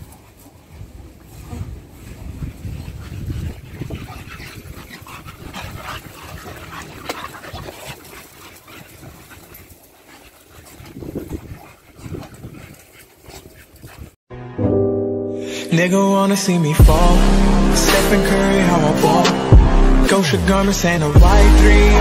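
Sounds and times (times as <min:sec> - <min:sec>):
dogs scuffling on grass: 0:00.0 - 0:14.1.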